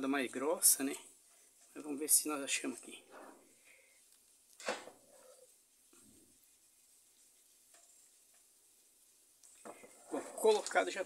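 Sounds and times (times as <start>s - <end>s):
faint steady hiss: 0.0s - 11.0s.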